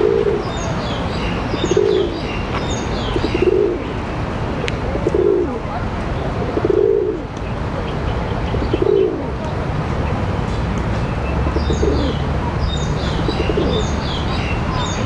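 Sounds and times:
pigeon cooing: 0:00.0 - 0:02.4, 0:03.0 - 0:03.9, 0:04.8 - 0:05.6, 0:06.4 - 0:07.3, 0:08.4 - 0:09.4, 0:11.5 - 0:12.2, 0:13.0 - 0:14.1
small birds chirping: 0:00.0 - 0:04.0, 0:06.8 - 0:15.0.

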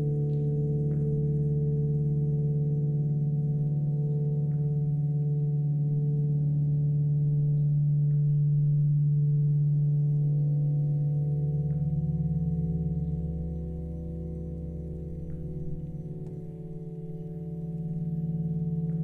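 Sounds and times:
ambient drone music: 0:00.0 - 0:19.0.

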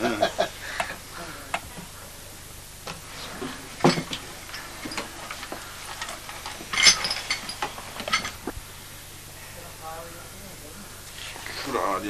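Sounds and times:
objects clattering: 0:02.8 - 0:08.6
objects clinking in wooden box: 0:03.8 - 0:08.5.

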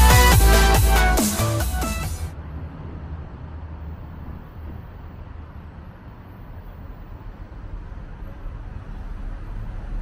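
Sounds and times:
electronic music: 0:00.0 - 0:02.4
city street traffic rumble: 0:00.0 - 0:10.0.

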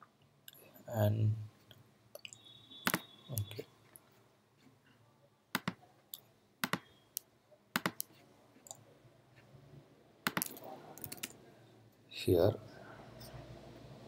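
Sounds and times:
keyboard clicks: 0:02.2 - 0:03.6, 0:05.5 - 0:05.8, 0:06.6 - 0:08.8, 0:10.2 - 0:11.4
computer mouse clicks: 0:05.6 - 0:05.8, 0:06.6 - 0:08.8, 0:10.2 - 0:11.4.

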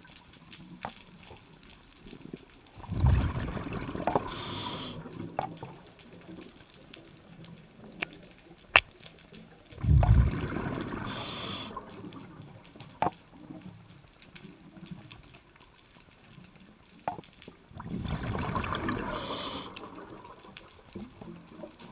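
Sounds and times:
exhaled bubbles rushing underwater: 0:02.8 - 0:05.4, 0:09.7 - 0:12.7, 0:17.7 - 0:21.9.

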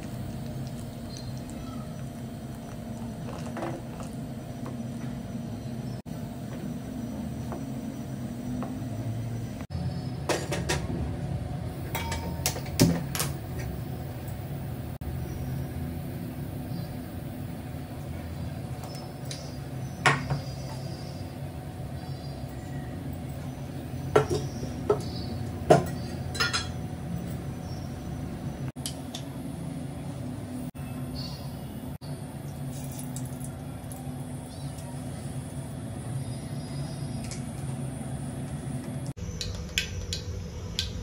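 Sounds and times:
steady low hum: 0:00.0 - 0:41.0
utensils and pots clinking: 0:11.8 - 0:13.7, 0:24.1 - 0:27.5.

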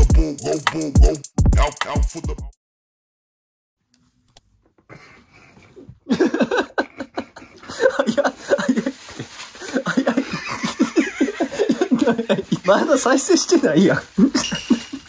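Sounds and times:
person laughing hard: 0:01.9 - 0:02.5, 0:06.0 - 0:13.0, 0:13.9 - 0:15.0.

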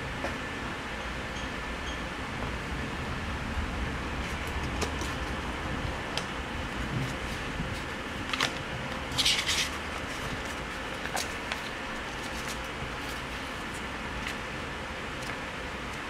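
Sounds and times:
paper rustle: 0:07.0 - 0:14.4.

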